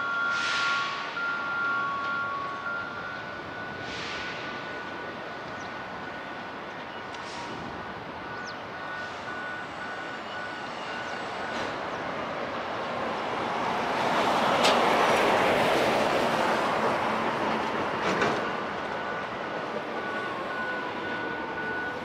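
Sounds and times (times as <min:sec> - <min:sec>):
thin high tone and beeps: 0:00.0 - 0:07.1, 0:08.2 - 0:12.0
locomotive approaching: 0:00.0 - 0:22.0.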